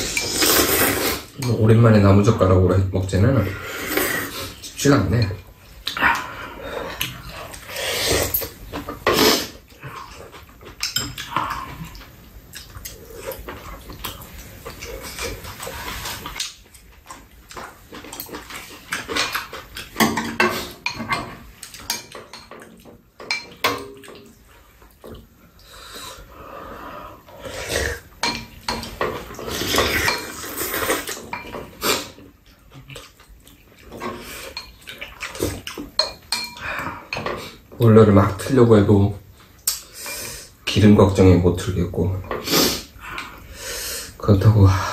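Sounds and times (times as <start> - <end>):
noodles slurped and chewed: 0.0 - 1.4, 28.8 - 36.0
utensils clinking against bowls: 9.9 - 12.0, 17.6 - 24.3, 28.2 - 31.8, 33.9 - 37.6.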